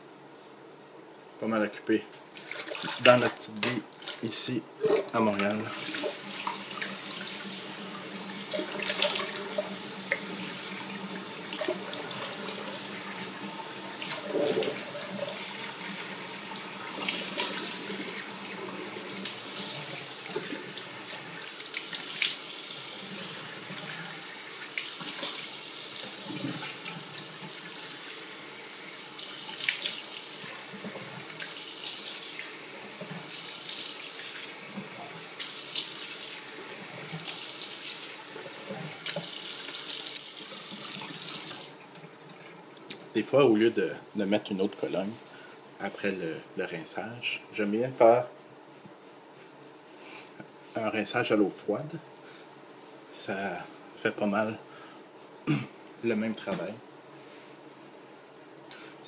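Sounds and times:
water splashing: 2.3 - 24.0
sink tap running: 5.6 - 42.0.

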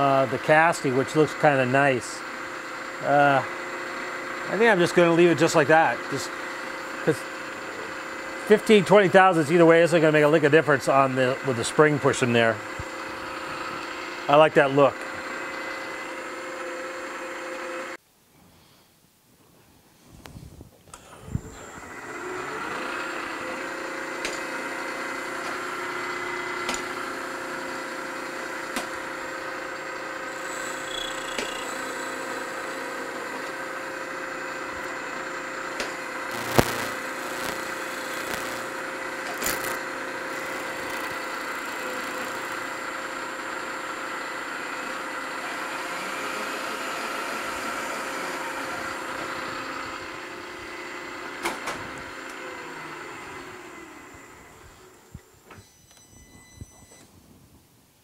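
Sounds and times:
milling machine spindle whine: 0.0 - 18.0, 21.0 - 57.0
sharp clicks: 36.3 - 38.7, 39.3 - 39.8.

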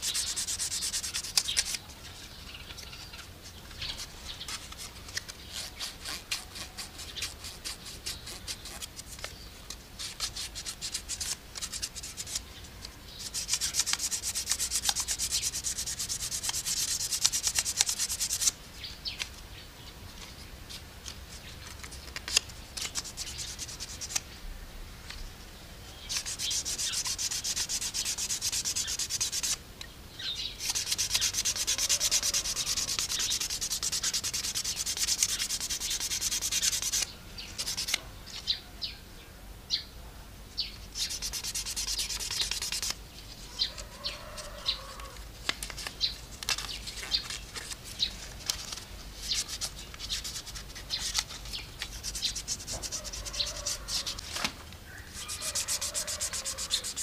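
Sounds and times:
sandpaper rubbing on wood: 0.0 - 1.8, 3.8 - 9.3, 10.0 - 12.4, 13.2 - 18.6, 22.2 - 24.2, 26.1 - 29.6, 30.6 - 38.0, 40.9 - 54.3, 55.1 - 57.0.

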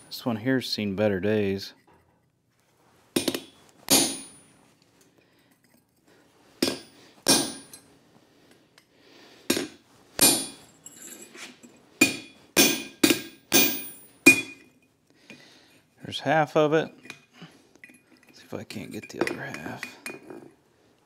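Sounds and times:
hammer striking chisel on metal: 3.2 - 4.4, 6.6 - 7.8, 9.5 - 10.6, 12.0 - 14.7.

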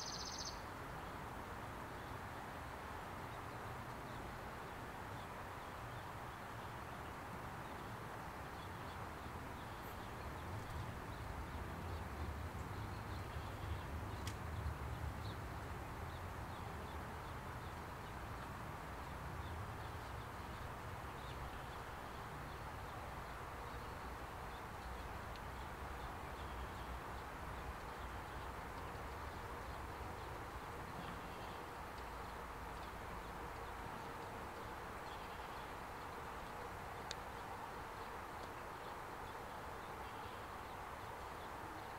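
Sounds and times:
high bird chirps: 0.0 - 0.6.

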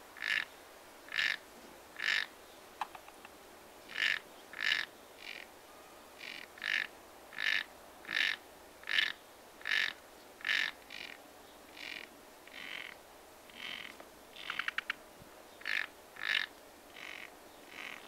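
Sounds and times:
frog calling: 0.2 - 0.5, 1.1 - 1.4, 2.0 - 3.3, 3.9 - 5.5, 6.2 - 11.2, 11.8 - 15.0, 15.6 - 18.0.

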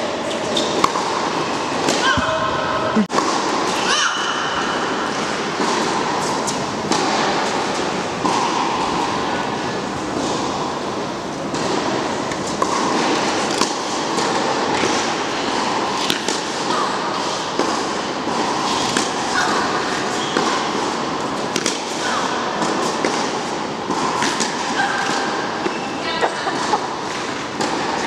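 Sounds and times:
hall background noise: 0.0 - 28.0
shoe squeaks: 0.2 - 0.8, 20.2 - 20.4, 25.7 - 26.1.

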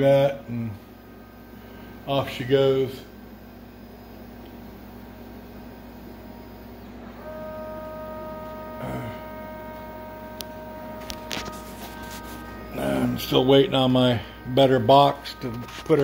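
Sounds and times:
stepper motors whining: 6.1 - 16.0.

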